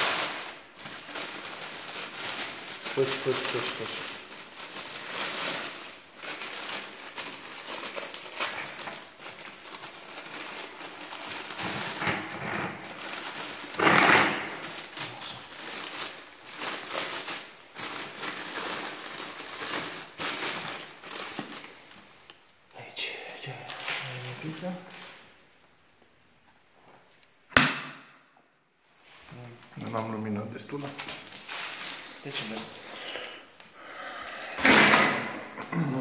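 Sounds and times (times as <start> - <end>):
plastic bag crinkling: 0.0 - 22.2, 23.6 - 25.4, 29.0 - 33.6
plastic bag rustling: 0.0 - 22.2, 23.5 - 25.4, 28.8 - 33.8.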